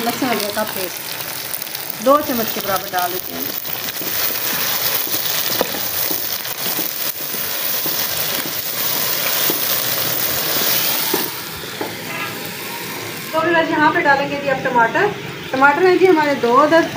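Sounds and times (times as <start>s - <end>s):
chicken sizzling in a pot: 0.0s - 13.5s
wooden spoon scraping a pot: 3.4s - 11.3s.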